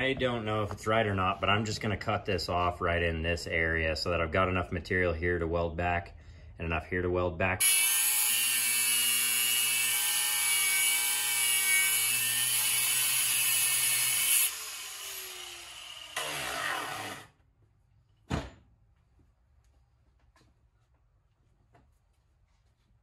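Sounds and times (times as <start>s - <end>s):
angle grinder cutting steel: 7.6s - 17.3s.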